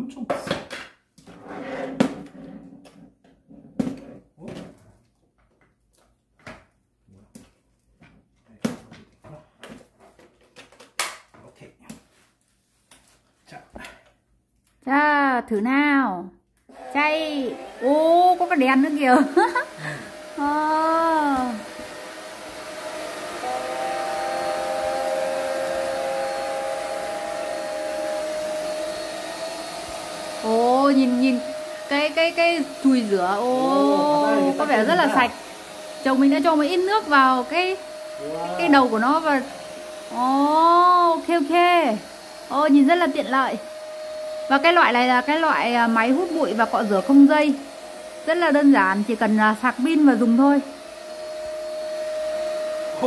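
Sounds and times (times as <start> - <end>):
vacuum motor whine: 16.7 - 53.0.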